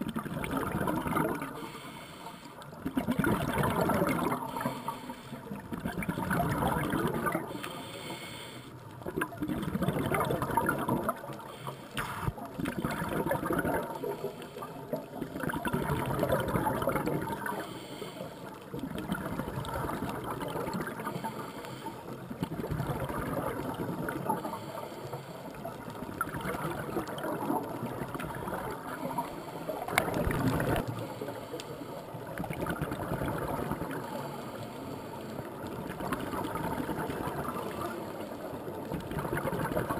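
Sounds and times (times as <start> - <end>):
exhaled bubbles gurgling: 0.0 - 39.9
scuba regulator breathing underwater: 0.6 - 32.5.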